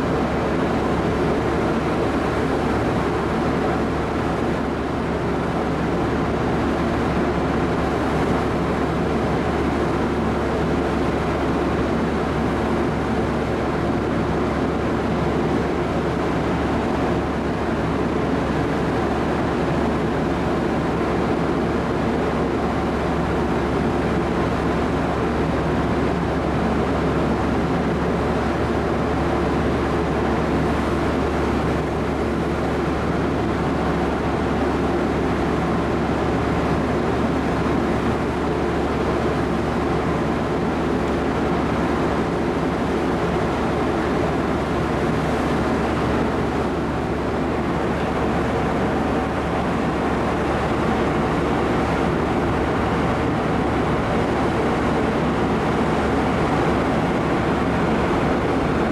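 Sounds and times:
ferry machinery drone: 0.0s - 58.9s.

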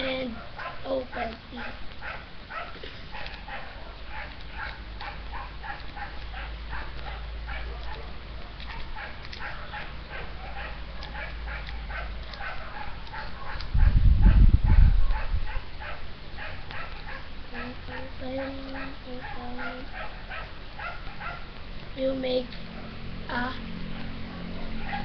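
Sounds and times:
dog yapping: 0.3s - 21.5s, 24.0s - 25.0s.

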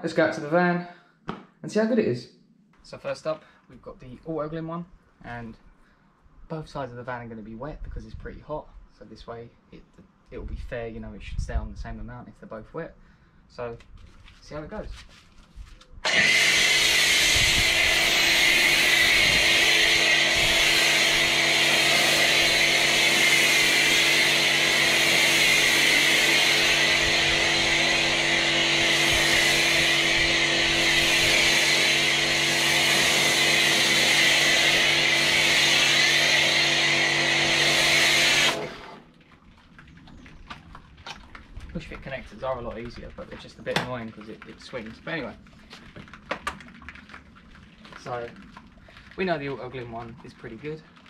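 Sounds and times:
pressure washer humming: 16.0s - 39.1s
foam spray hissing: 16.3s - 38.8s.

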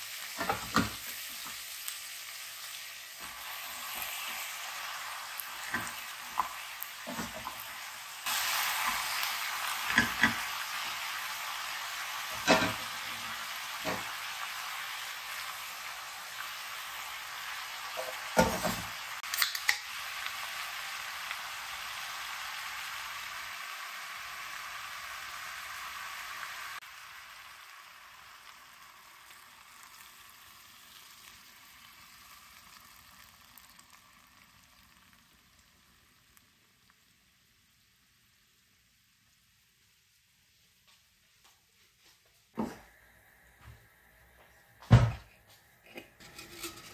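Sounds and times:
food sizzling in a pan: 0.0s - 46.9s
utensil clattering against pan: 46.2s - 46.9s.

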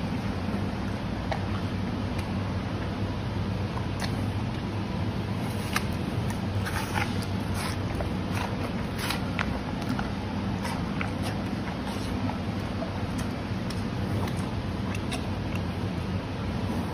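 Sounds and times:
steady low hum: 0.0s - 16.9s
panda chewing apple: 3.7s - 16.9s.

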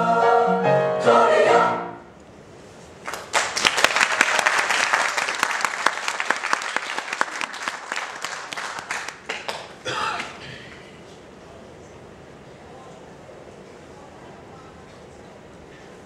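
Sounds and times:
choir singing: 0.0s - 2.1s
audience applause: 3.0s - 10.4s.

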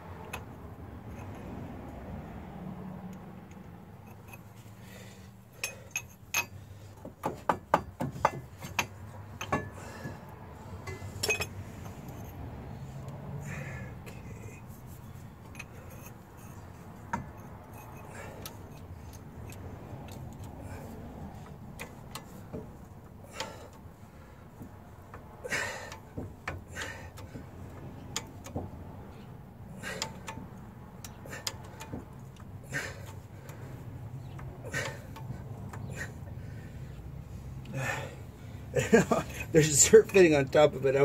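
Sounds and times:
metal clicks and clinks: 3.1s - 4.6s, 5.6s - 6.6s, 8.2s - 9.8s, 10.8s - 12.4s, 15.4s - 22.4s.

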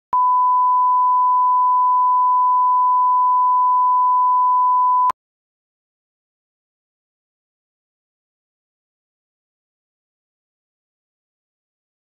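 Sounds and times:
sine-wave test tone beep: 0.1s - 5.2s.

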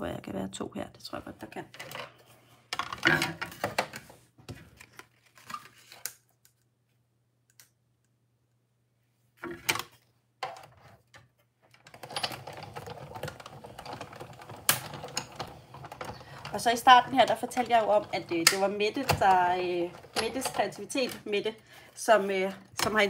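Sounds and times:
paper rustling: 3.8s - 6.1s.

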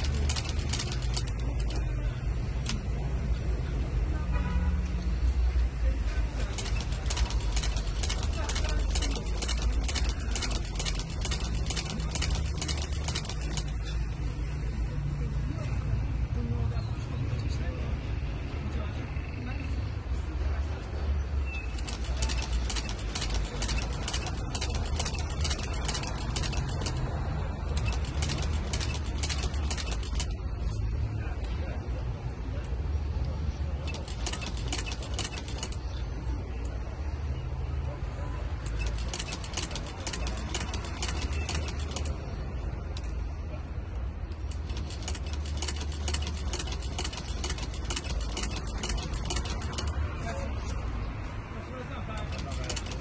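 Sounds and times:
sewing machine needle clicks: 0.0s - 3.0s, 6.3s - 14.0s, 21.7s - 27.1s, 27.7s - 30.4s, 33.8s - 36.0s, 38.6s - 42.3s, 44.3s - 50.0s, 52.1s - 53.0s.

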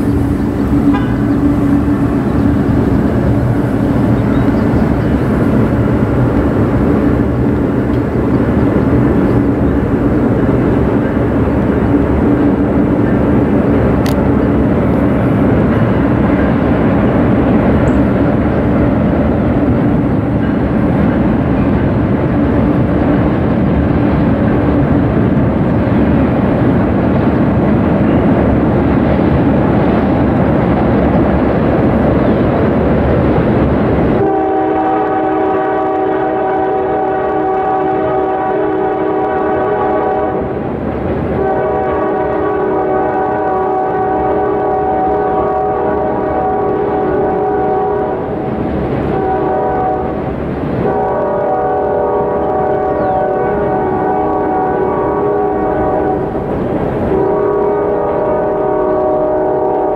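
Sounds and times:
diesel locomotive engines running: 0.0s - 59.9s
train cars rumbling on rails: 0.0s - 59.9s
locomotive air horn: 0.7s - 1.6s, 34.2s - 40.6s, 41.4s - 48.5s, 49.1s - 50.2s, 50.8s - 56.3s, 57.1s - 59.9s.

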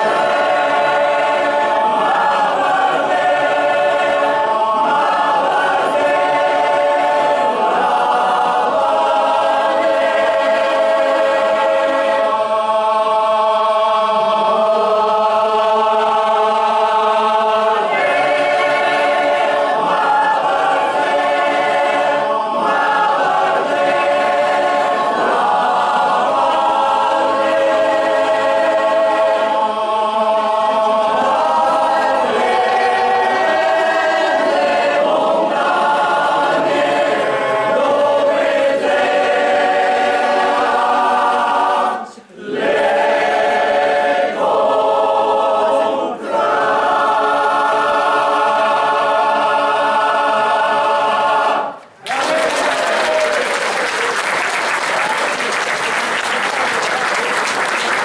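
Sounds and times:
men's choir singing a cappella: 0.0s - 58.0s
audience applause: 52.0s - 58.0s.

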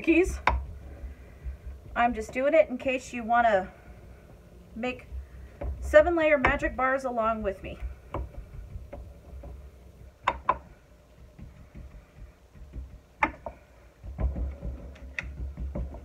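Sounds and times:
low soft rumble of patting: 0.0s - 16.0s
taps and clicks against glass: 10.2s - 10.7s, 12.6s - 16.0s.

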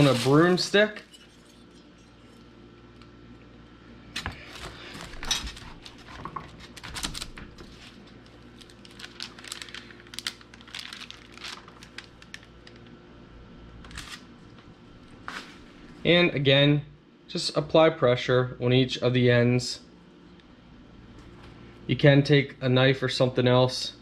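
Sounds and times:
parchment paper crinkling: 0.0s - 0.7s, 5.6s - 12.9s.

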